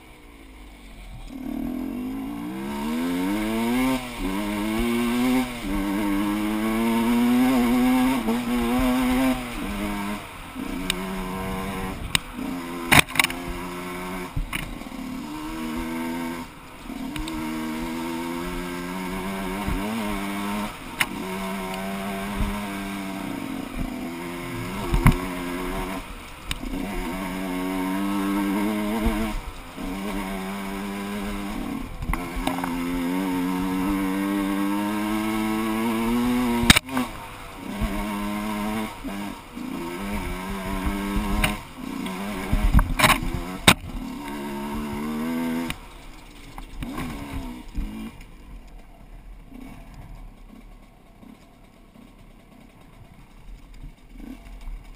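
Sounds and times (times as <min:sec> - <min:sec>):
dirt bike engine revving: 0:00.0 - 0:54.9
sharp knocks over rough ground: 0:03.4 - 0:16.3, 0:23.7 - 0:33.2, 0:33.9 - 0:39.3, 0:40.0 - 0:48.9.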